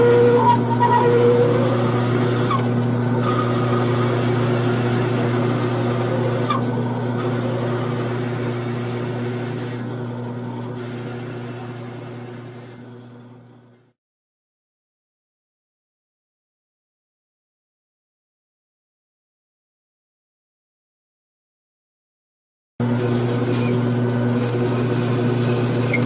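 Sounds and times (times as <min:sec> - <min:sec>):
high whine of drill cutting: 0:00.0 - 0:13.1, 0:22.8 - 0:26.0
metal lathe humming: 0:00.0 - 0:13.2, 0:22.8 - 0:26.0.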